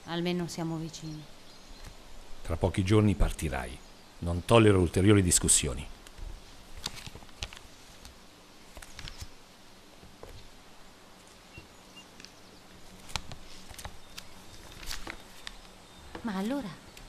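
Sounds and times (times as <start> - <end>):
paper map rustling: 6.2 - 9.4, 12.2 - 16.6
faint high chirps: 11.4 - 12.7.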